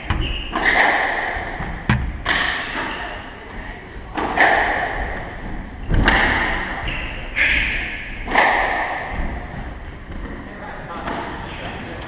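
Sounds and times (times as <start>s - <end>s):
squash ball hits: 0.0s - 3.0s, 5.9s - 6.8s, 8.2s - 9.3s.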